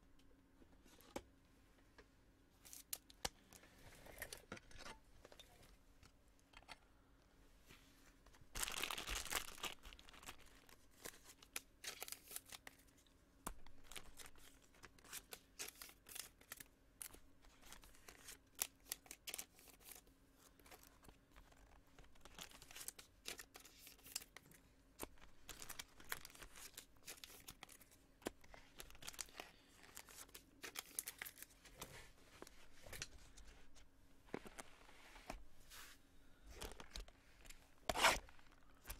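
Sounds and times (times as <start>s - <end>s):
plastic packaging crinkling: 8.5s - 12.8s, 25.0s - 27.9s, 28.5s - 31.6s.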